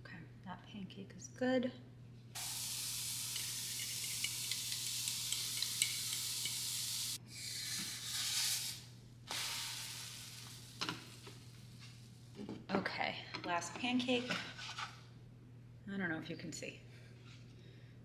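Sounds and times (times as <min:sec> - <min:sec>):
batter sizzling in a frying pan: 0:02.4 - 0:11.6.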